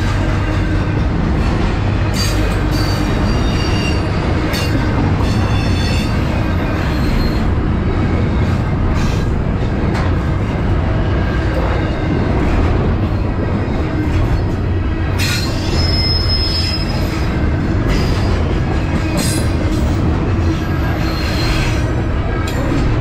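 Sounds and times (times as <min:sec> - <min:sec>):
train wheels rumbling on rail: 0:00.0 - 0:23.0
high wheel squeal: 0:02.1 - 0:07.5, 0:15.2 - 0:18.3, 0:20.5 - 0:21.9.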